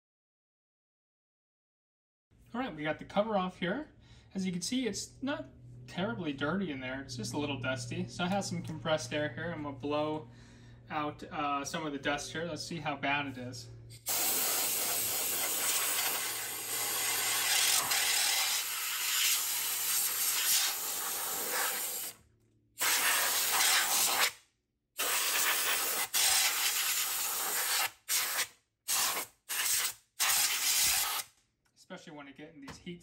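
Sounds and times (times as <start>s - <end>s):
compressed air hissing from nozzle: 13.9s - 22.2s, 22.8s - 24.3s, 25.0s - 31.3s.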